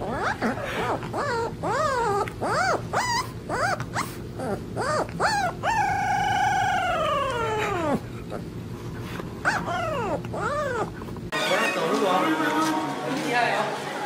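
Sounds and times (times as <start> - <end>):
puppy howling and yipping: 0.0 - 8.4, 9.4 - 11.8.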